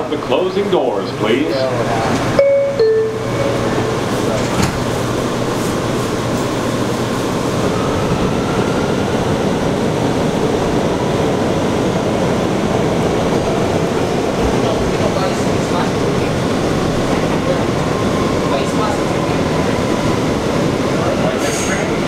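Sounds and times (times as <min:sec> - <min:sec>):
subway car rumbling: 0:00.0 - 0:22.0
two-note door chime: 0:02.4 - 0:04.0.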